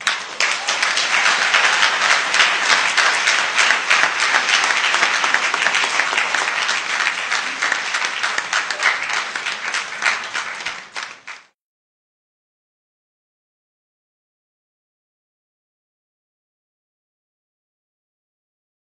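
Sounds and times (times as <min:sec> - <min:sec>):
large audience applauding: 0:00.0 - 0:11.6.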